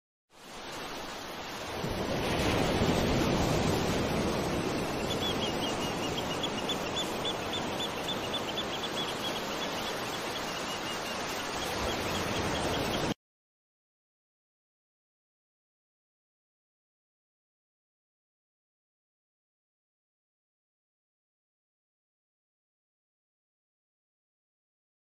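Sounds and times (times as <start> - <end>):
ocean surf washing on beach: 0.4 - 13.2
bird chirping rapidly: 5.0 - 13.1.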